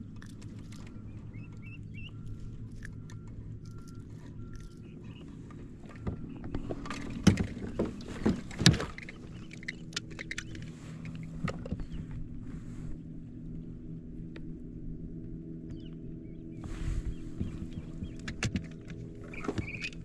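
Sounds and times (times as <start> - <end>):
boat motor humming: 0.0 - 20.0
knocks and clatters: 5.9 - 12.0.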